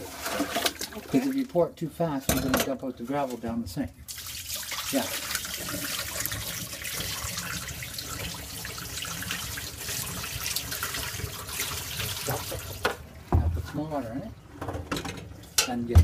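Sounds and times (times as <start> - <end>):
water pouring into steel sink: 0.0 - 1.4, 4.1 - 12.9.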